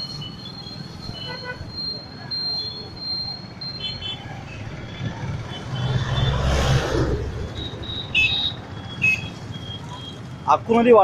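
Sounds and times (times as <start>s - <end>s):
short high-pitched beeps: 0.0s - 6.3s, 7.4s - 10.4s
vehicle passing: 4.5s - 8.8s.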